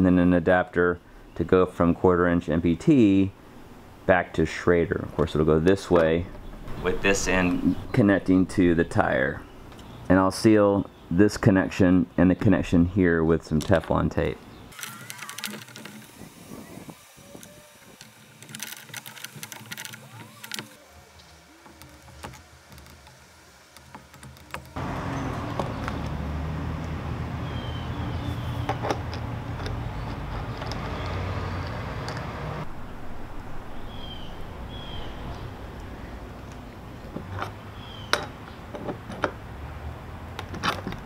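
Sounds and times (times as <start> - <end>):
tape crinkling off roll: 14.8 - 16.5, 17.3 - 20.8
brass fittings clicking: 21.6 - 24.8.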